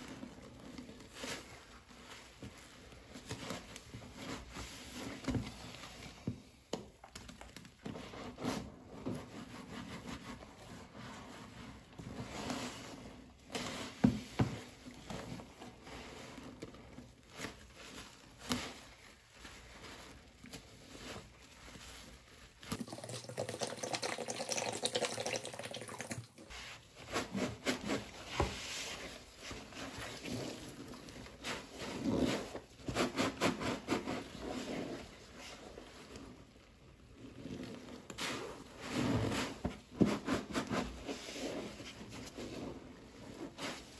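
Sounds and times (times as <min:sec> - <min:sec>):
sponge squelching in soapy water: 0:00.0 - 0:43.9
liquid pouring into basin: 0:22.7 - 0:26.5.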